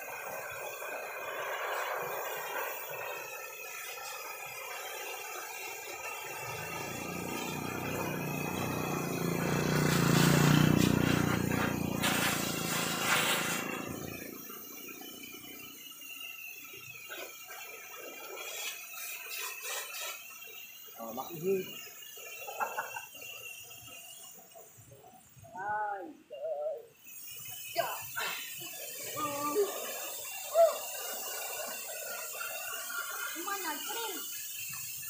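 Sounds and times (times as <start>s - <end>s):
engine passing by: 6.3s - 15.6s.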